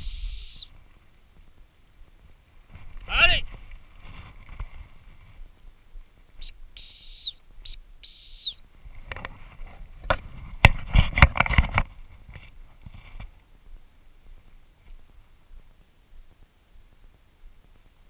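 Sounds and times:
dog training whistle: 0.0 - 0.7, 6.4 - 8.6
thumps and rustles: 9.0 - 13.4.

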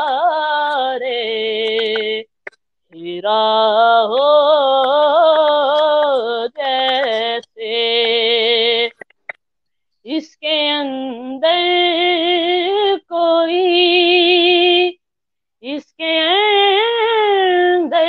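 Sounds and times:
boy singing unaccompanied: 0.0 - 2.3, 2.9 - 9.0.

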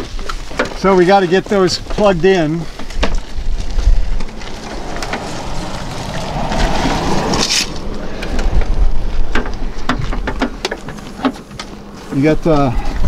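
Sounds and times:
wind buffeting microphone: 1.6 - 11.2.

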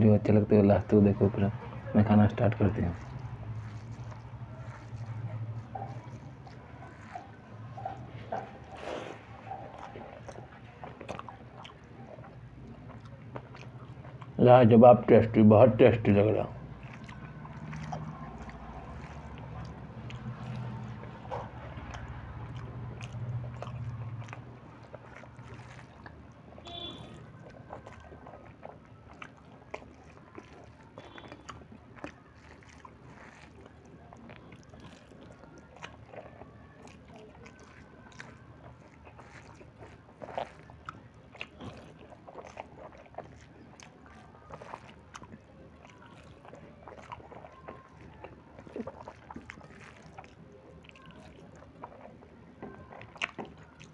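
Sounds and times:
fingers mixing food on plate: 0.0 - 14.4, 16.0 - 53.9
person chewing food: 0.0 - 53.9.

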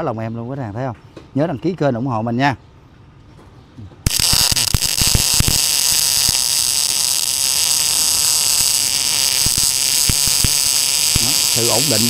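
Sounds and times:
welding arc crackles and pops: 4.0 - 12.0
welding arc hissing buzz: 4.0 - 12.0.

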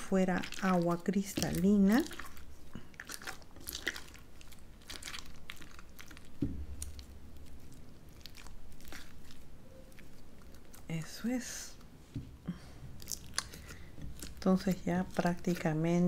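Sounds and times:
slime crackling and squelching: 0.0 - 11.8, 12.5 - 16.0
soft thump: 6.4 - 6.7.

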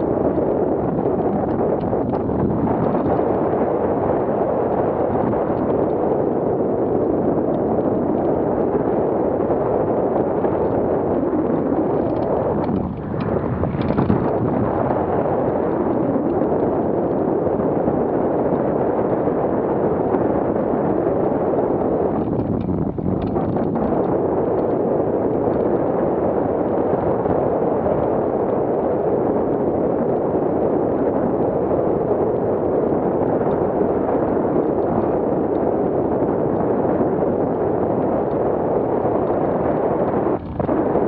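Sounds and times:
wind rushing over microphone: 0.0 - 41.0.

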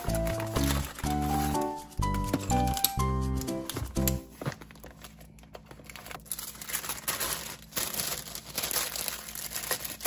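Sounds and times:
background music: 0.0 - 4.4.

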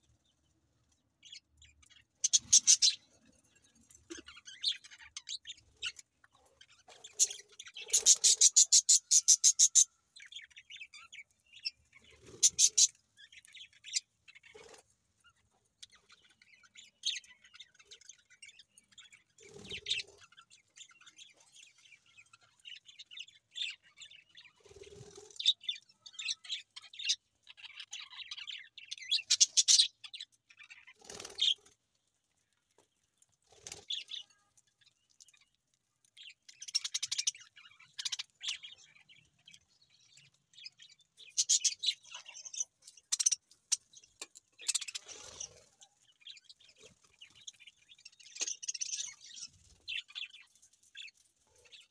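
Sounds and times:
budgerigars chirping: 1.9 - 3.1, 7.0 - 11.1, 11.7 - 14.8, 25.3 - 31.6, 40.7 - 44.0, 44.6 - 45.6.

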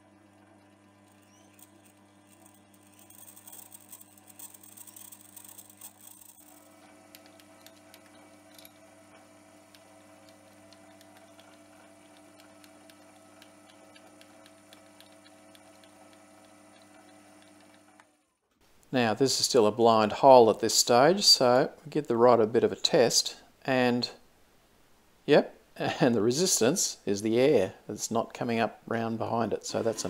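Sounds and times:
lathe motor hum: 0.0 - 18.2.

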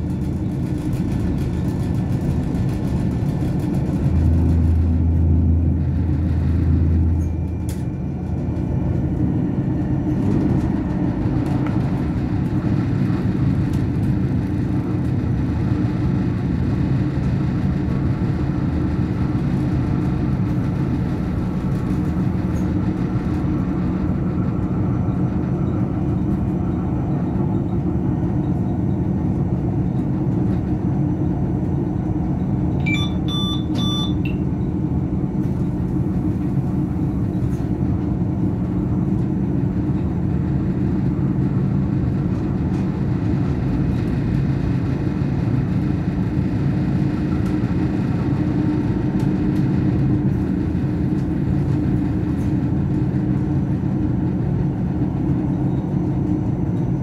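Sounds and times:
train cab rumble and hum: 0.0 - 57.0
electronic beeps: 32.8 - 34.4.

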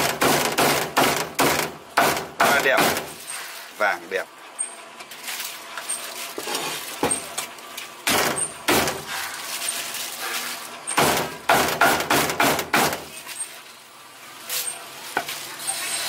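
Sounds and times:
cleaver chopping on a block: 0.0 - 3.1, 11.0 - 13.0.

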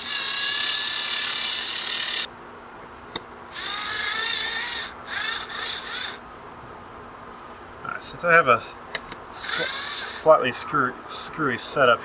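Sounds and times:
electric screwdriver whirring: 0.0 - 2.3, 3.5 - 6.2, 9.4 - 10.2.

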